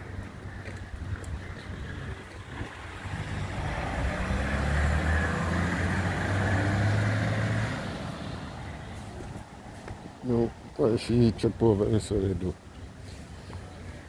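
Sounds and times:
car driving past: 1.9 - 9.5.

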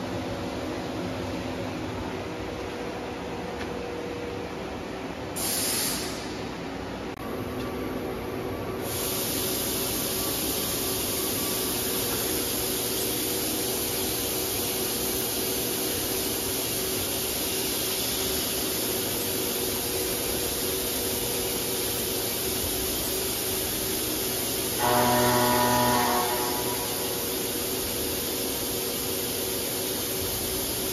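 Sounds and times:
machine steady hiss and hum: 0.0 - 30.9
machine whining tone: 24.7 - 27.6.

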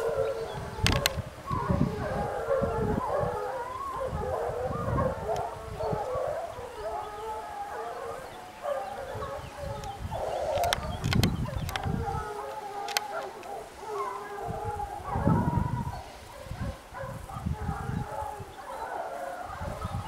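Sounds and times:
hounds baying: 0.0 - 20.0
sharp clicks: 9.8 - 12.0, 12.8 - 13.6.

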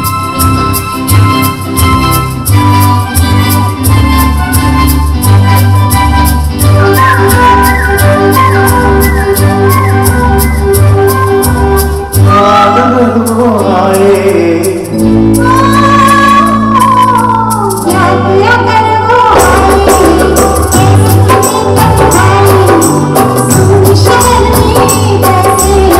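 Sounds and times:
live band with drums and keyboard: 0.0 - 25.9
person singing: 12.1 - 25.9.

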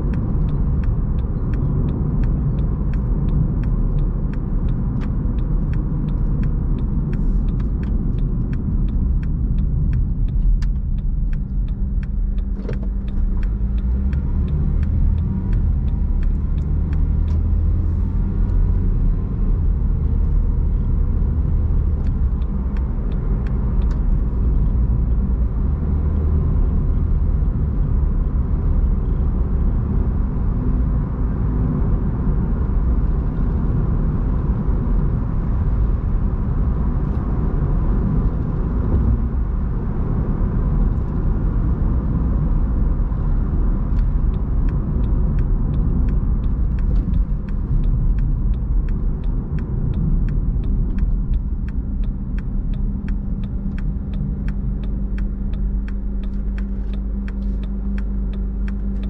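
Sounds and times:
faint light ticks: 0.0 - 29.3, 43.6 - 59.0
car road and engine rumble: 0.0 - 59.0.

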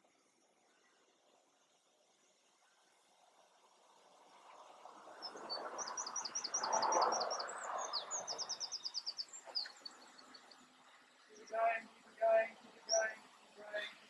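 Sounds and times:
songbird singing: 0.0 - 14.0.

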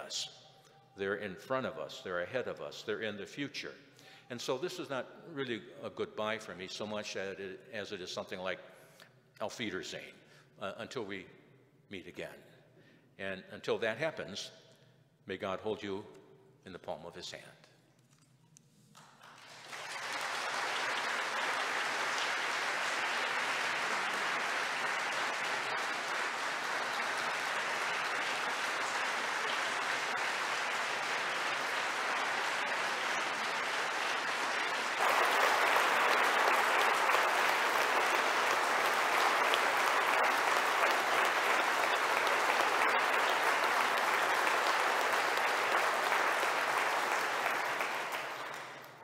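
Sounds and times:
congregation applauding: 19.0 - 49.0.

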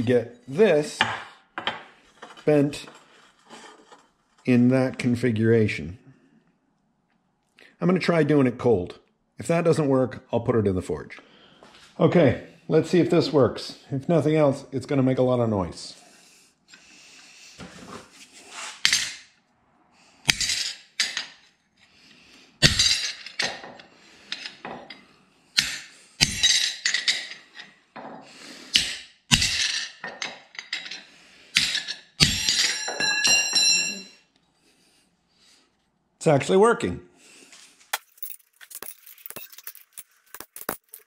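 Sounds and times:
hammer clanging on steel plate: 31.6 - 34.1.

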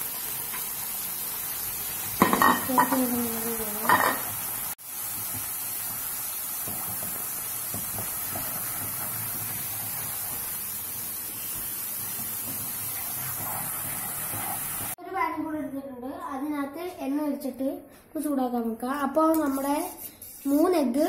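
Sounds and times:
food sizzling in a wok: 0.0 - 15.0
spatula scraping wok: 11.9 - 15.0.

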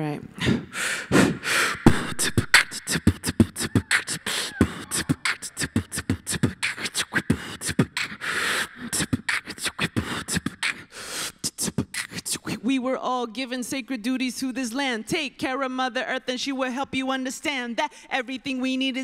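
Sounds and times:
woman beatboxing: 0.0 - 13.2.

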